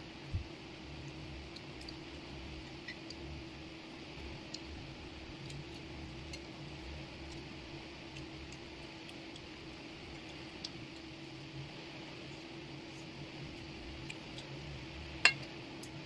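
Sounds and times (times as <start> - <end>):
low hum and hiss: 0.0 - 16.0.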